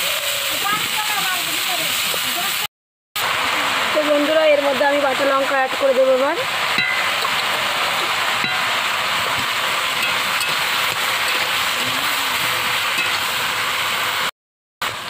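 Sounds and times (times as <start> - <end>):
food sizzling in wok: 0.0 - 15.0
metal spatula scraping pan: 9.4 - 13.2.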